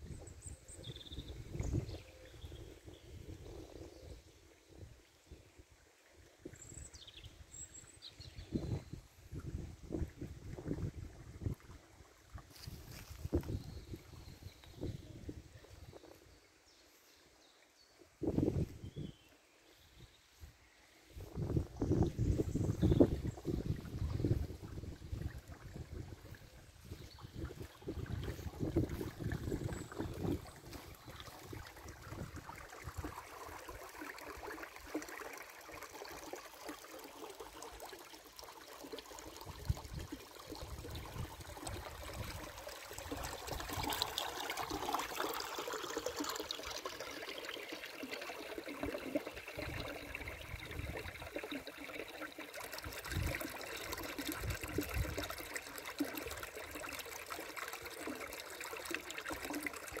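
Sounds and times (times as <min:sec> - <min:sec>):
stream babbling over stones: 0:21.3 - 1:00.0.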